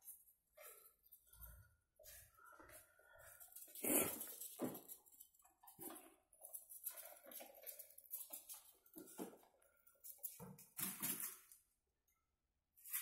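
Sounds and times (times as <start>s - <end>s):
ferrets scampering on floor: 2.6s - 11.7s.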